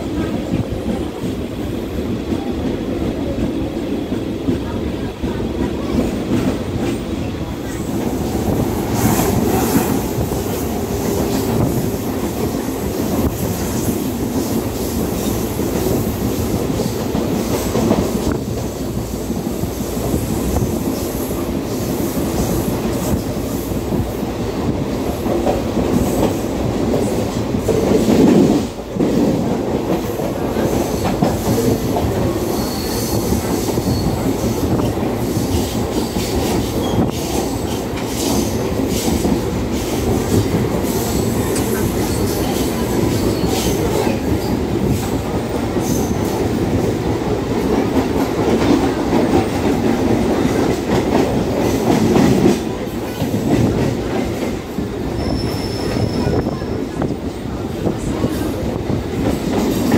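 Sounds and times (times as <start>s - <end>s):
train wheels rumbling and clattering: 0.0s - 59.9s
faint high wheel squeal: 32.5s - 34.2s, 55.2s - 56.8s.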